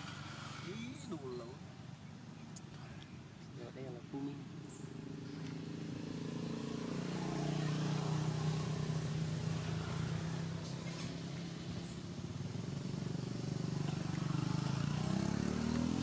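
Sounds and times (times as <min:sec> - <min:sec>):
vehicle engine idling: 0:07.0 - 0:15.1.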